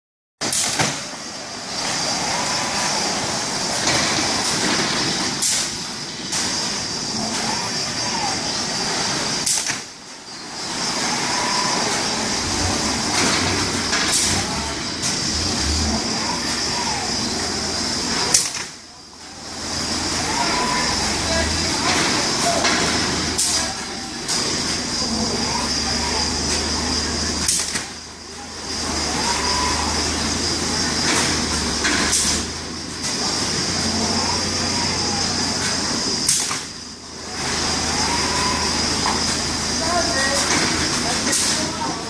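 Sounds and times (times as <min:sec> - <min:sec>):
steady machinery hiss: 0:00.4 - 0:42.0
robot arm servo whines: 0:06.7 - 0:18.5, 0:19.4 - 0:32.6, 0:37.3 - 0:40.4.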